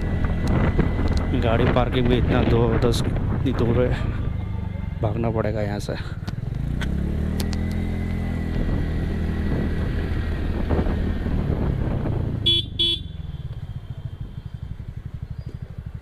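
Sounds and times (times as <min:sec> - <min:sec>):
horn beeps: 0:12.4 - 0:14.5.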